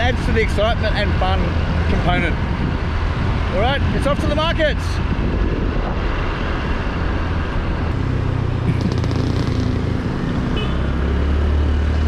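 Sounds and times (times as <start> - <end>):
wind rumble on microphone: 0.0 - 10.4
road traffic: 0.0 - 12.0
motorbike engine running: 8.6 - 10.8.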